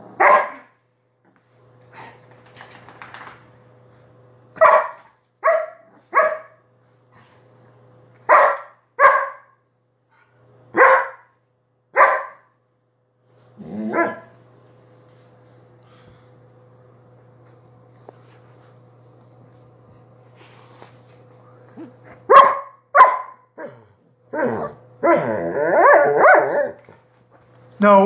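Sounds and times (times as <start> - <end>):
dog barking: 0.1 - 0.7, 4.6 - 6.6, 8.3 - 9.5, 10.8 - 11.3, 12.0 - 12.5, 13.9 - 14.3, 22.3 - 23.8, 25.8 - 26.8.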